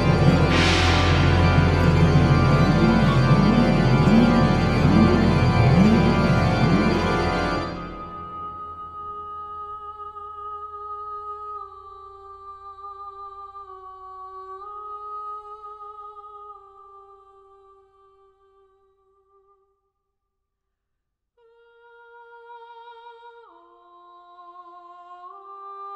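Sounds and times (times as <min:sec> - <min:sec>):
soft melody of long held notes: 0:00.0 - 0:09.7.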